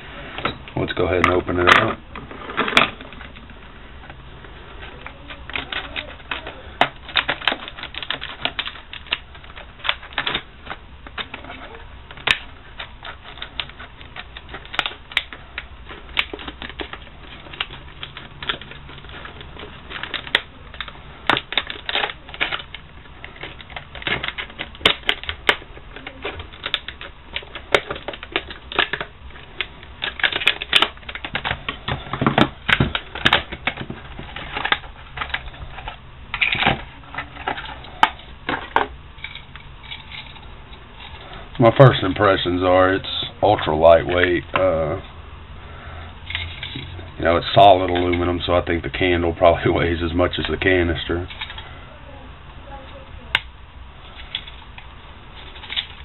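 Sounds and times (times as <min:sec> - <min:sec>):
plastic packaging crinkling: 0:01.1 - 0:45.0.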